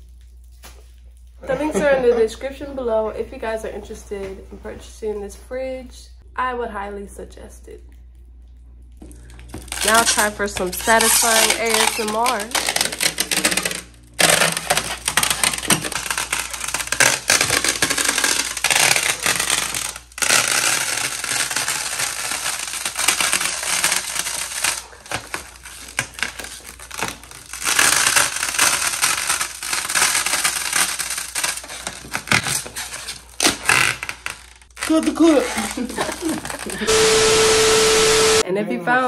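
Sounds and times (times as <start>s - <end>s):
plastic film crackling: 9.0s - 37.6s.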